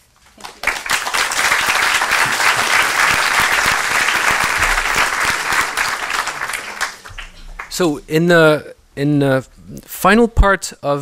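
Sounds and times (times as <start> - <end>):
audience applauding: 0.3 - 7.9.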